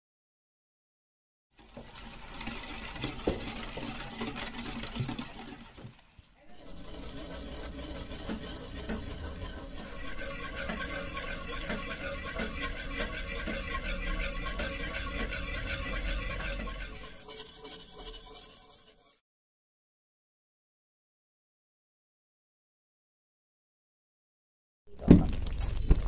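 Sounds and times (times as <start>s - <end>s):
whisk scraping a metal pan: 1.6s - 19.2s.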